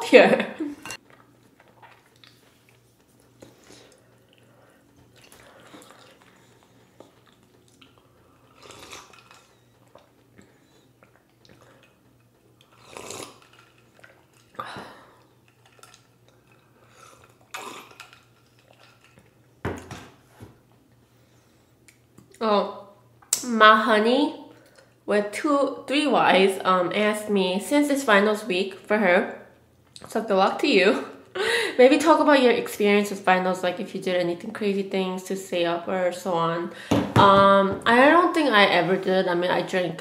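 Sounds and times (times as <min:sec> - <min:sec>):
person chewing: 0:01.0 - 0:19.4
sipping and swallowing: 0:03.4 - 0:19.3.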